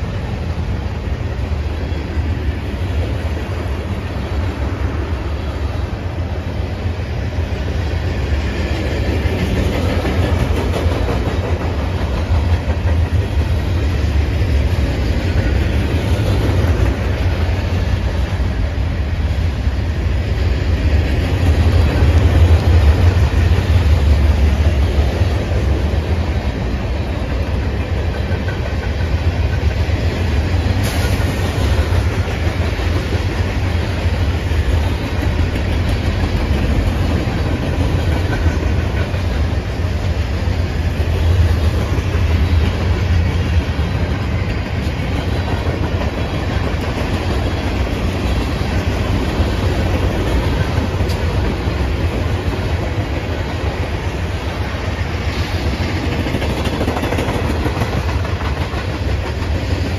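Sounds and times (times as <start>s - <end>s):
freight train wheels rumbling on rail: 0.0s - 59.9s.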